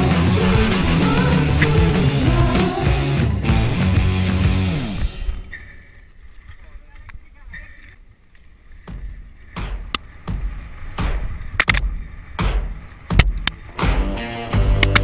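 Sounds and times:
slow rock drum beat: 0:00.0 - 0:05.3, 0:08.9 - 0:15.0
humming guitar and bass riff: 0:00.0 - 0:05.6, 0:11.0 - 0:15.0.

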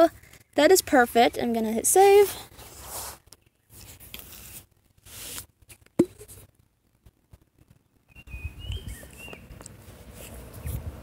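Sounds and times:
scratchy handling noise: 0:02.0 - 0:06.5.

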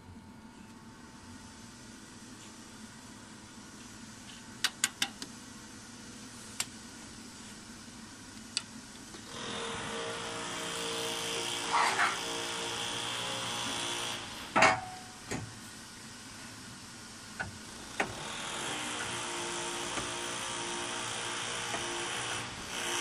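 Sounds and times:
milling machine whining: 0:09.1 - 0:14.9, 0:17.8 - 0:23.0
loud metal clank: 0:14.6 - 0:15.1.

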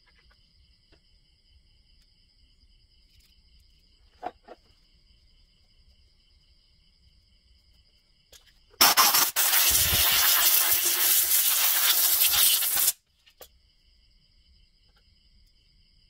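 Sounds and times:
insects trilling: 0:00.0 - 0:16.0
pressurized spray hissing: 0:08.8 - 0:13.0.

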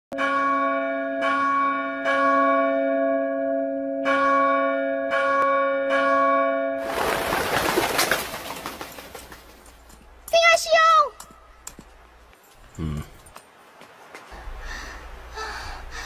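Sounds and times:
large bell ringing: 0:00.2 - 0:06.8.

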